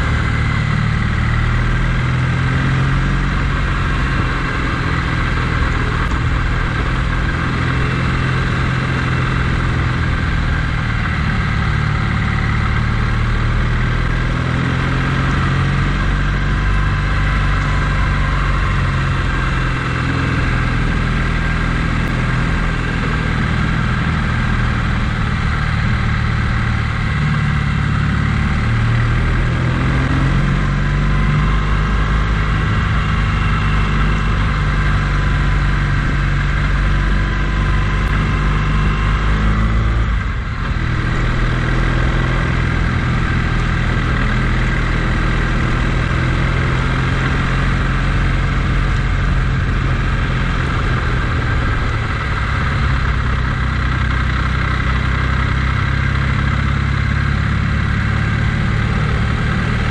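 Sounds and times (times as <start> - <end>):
vehicle engine running: 0.0 - 59.9.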